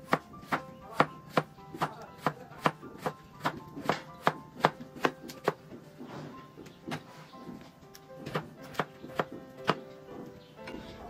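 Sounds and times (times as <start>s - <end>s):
knife chopping on wooden board: 0.0s - 6.3s, 8.2s - 9.8s.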